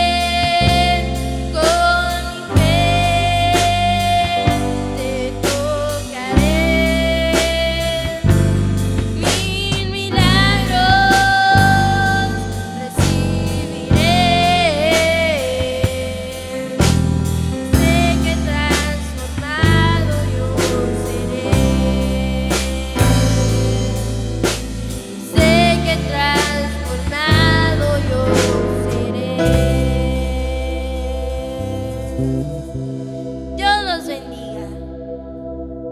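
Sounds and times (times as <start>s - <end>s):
girl singing lead: 0.0s - 24.2s, 25.0s - 32.3s, 33.6s - 35.0s
live band playing: 0.0s - 34.6s
drum and cymbal hits: 0.6s - 29.8s.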